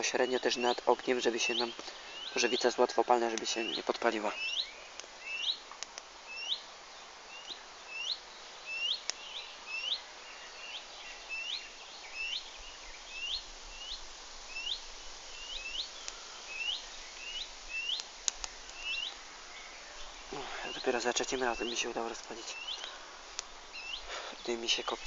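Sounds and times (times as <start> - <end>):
small bird chirping: 0.0 - 25.0
faint clicks: 1.7 - 2.0, 4.9 - 6.1, 15.8 - 19.9, 22.1 - 23.6.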